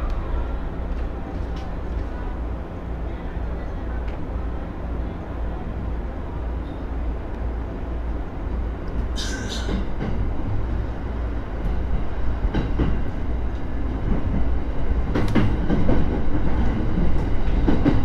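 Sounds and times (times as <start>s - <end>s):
train rumble: 0.0s - 18.0s
train wheels clacking: 9.2s - 10.3s, 12.5s - 18.0s.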